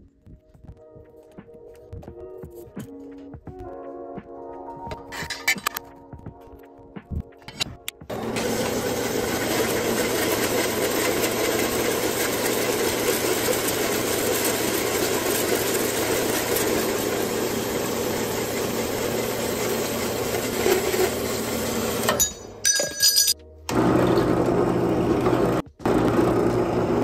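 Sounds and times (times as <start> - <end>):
band saw cutting steel: 8.1 - 22.6.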